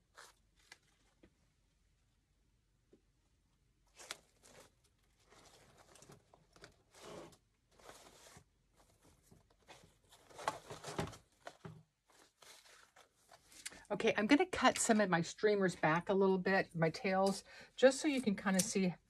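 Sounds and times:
wire ribbon crinkling: 3.9 - 10.6, 11.4 - 13.8.

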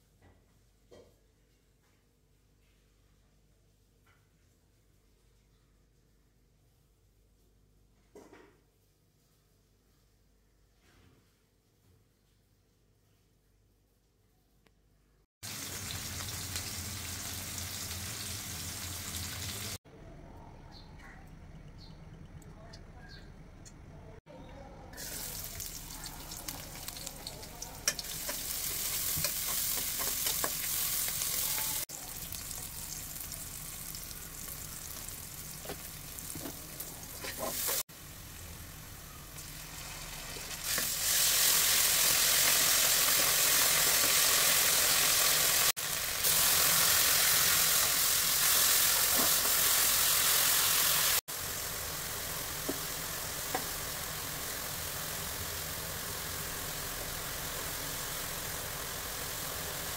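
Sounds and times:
onions sizzling in hot oil: 15.4 - 19.8, 25.0 - 59.9.

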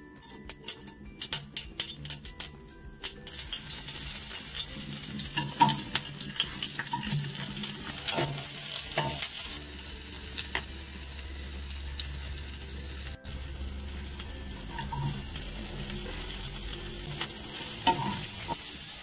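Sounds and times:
oil sizzling in a wok: 0.2 - 19.0
sharp pops and crackles: 0.5 - 3.7.

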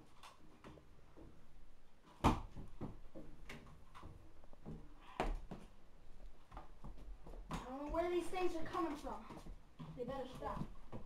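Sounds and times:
footsteps on stepladder: 6.4 - 11.0
footsteps on wooden floor: 6.4 - 11.0.

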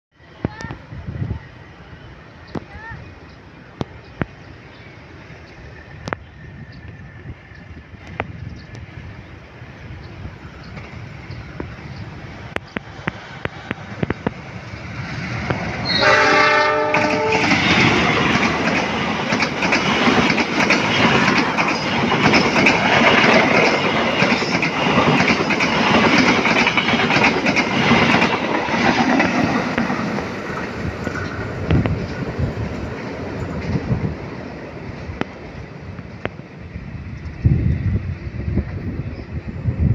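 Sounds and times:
train wheels rumbling and clacking: 5.3 - 39.9
train horn blast: 15.8 - 17.8.

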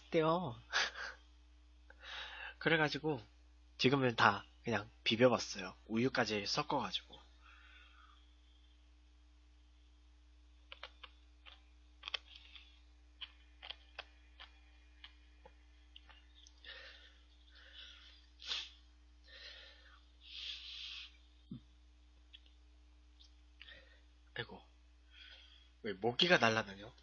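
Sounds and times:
short breathy bursts: 16.6 - 21.3.

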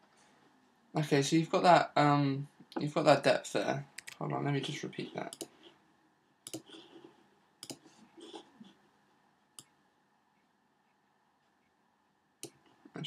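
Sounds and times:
computer mouse click: 5.3 - 5.5, 6.4 - 6.8, 7.6 - 7.9.

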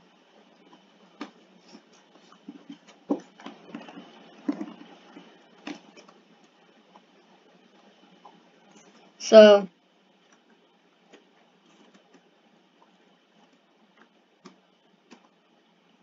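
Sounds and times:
rustling handling at desk: 1.1 - 6.6, 11.1 - 12.3.

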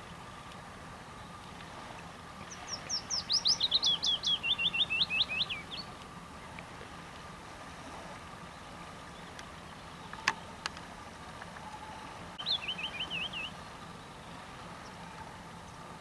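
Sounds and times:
songbird warbling: 2.4 - 6.6, 8.4 - 15.9.

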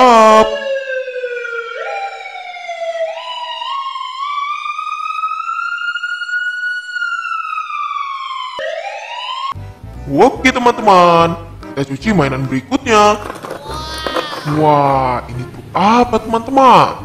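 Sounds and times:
ambulance siren wailing: 0.0 - 9.6.

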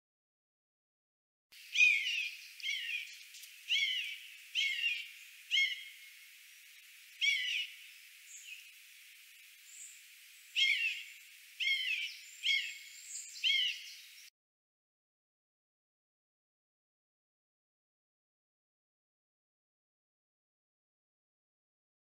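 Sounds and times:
eagle calling: 1.6 - 8.8, 9.7 - 14.2.

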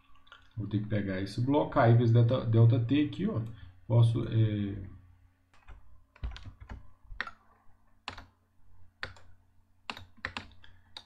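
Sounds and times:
keyboard and mouse clicks: 5.5 - 8.4, 9.0 - 11.0.

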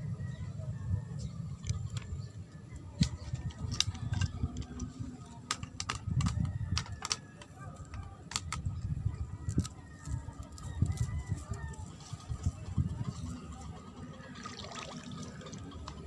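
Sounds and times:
phone handling rumble: 1.5 - 9.6
sharp clicks and taps: 3.0 - 8.7.

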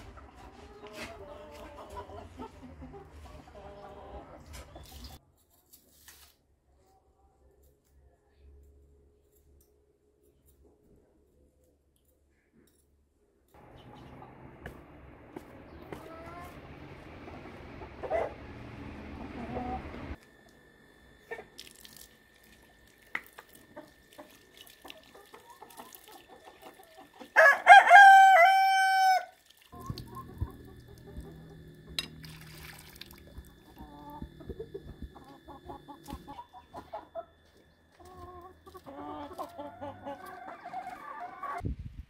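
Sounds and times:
hens clucking: 0.0 - 5.2, 13.6 - 20.2, 23.4 - 29.0, 29.8 - 32.1, 33.2 - 41.6
rooster crowing: 18.0 - 20.2, 27.3 - 29.4, 38.9 - 41.6
water splashing from tap: 32.0 - 33.8.

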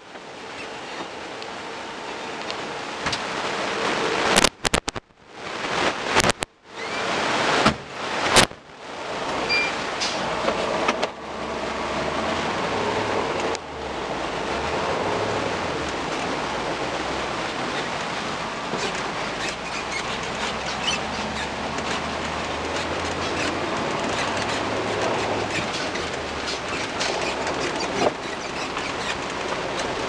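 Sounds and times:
sharp clicks: 4.3 - 5.1
tractor cab machinery noise: 6.1 - 30.0.

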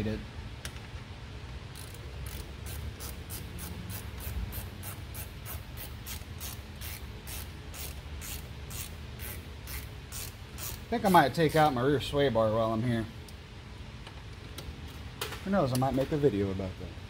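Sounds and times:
hand ratchet clicking: 1.7 - 10.9.

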